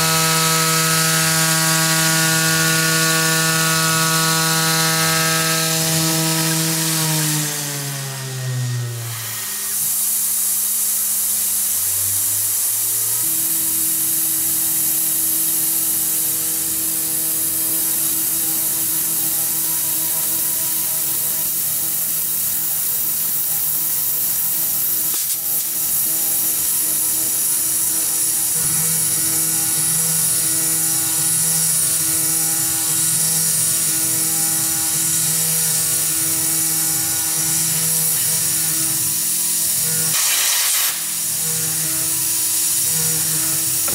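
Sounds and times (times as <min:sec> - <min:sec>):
mill cutting metal whine: 0:00.0 - 0:43.9
coolant mist hiss: 0:40.1 - 0:41.2.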